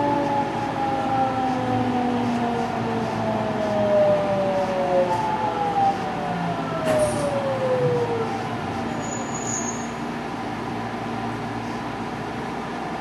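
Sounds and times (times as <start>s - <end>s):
train rumbling along track: 0.0s - 13.0s
faint high squeal: 8.9s - 10.0s.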